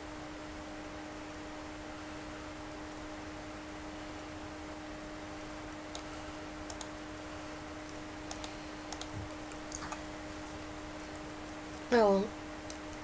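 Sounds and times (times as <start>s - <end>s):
low electrical hum: 0.0s - 13.0s
computer mouse clicking: 6.7s - 6.9s, 7.9s - 9.2s.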